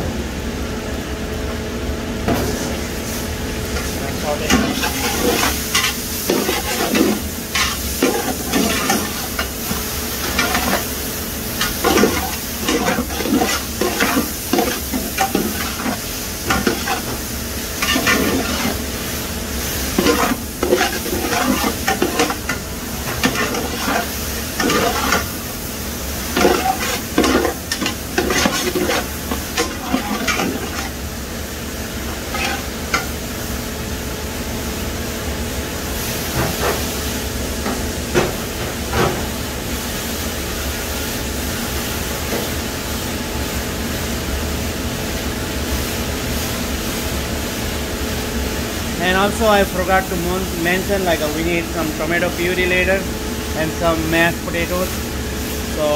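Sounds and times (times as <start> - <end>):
vegetables sizzling in oil: 2.4 - 33.8
metal spatula scraping a pot: 4.5 - 10.9, 11.6 - 17.2, 17.8 - 18.9, 19.9 - 25.4, 26.3 - 31.0, 32.1 - 32.8.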